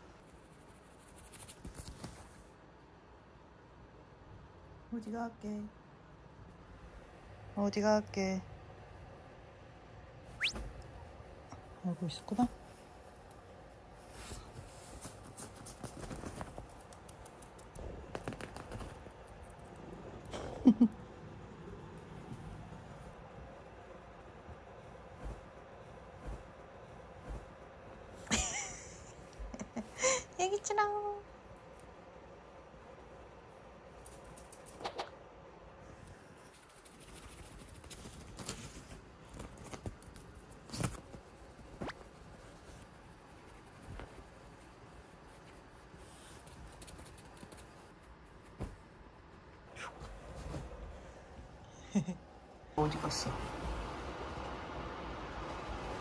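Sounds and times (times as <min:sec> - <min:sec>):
kitten scrabbling on hard floor: 0:15.0 - 0:19.7.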